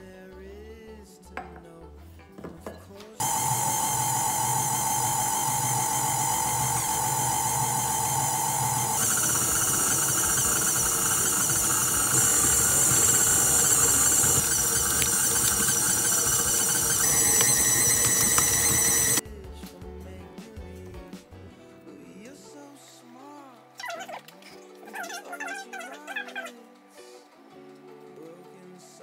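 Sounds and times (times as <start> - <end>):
stand mixer motor whining: 3.2 - 19.2.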